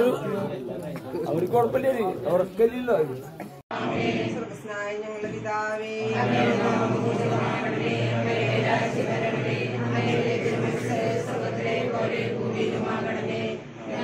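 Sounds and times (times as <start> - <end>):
group chanting in unison: 3.7 - 4.6, 5.2 - 14.0.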